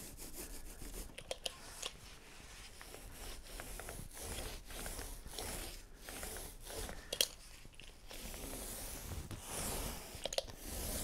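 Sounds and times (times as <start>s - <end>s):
foam roller rubbing on panel: 2.3s - 7.1s, 8.1s - 11.0s.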